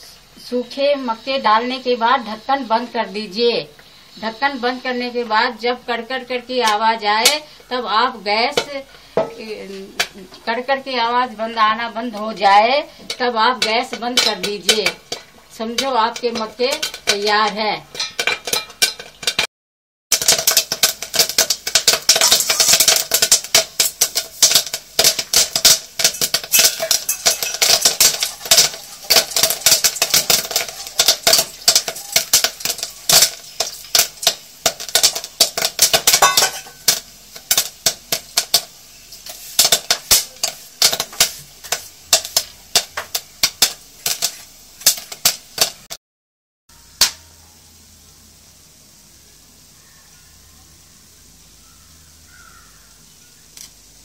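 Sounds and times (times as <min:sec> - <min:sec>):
popcorn popping in pan: 0:05.1 - 0:19.5, 0:20.1 - 0:46.0, 0:46.7 - 0:47.4.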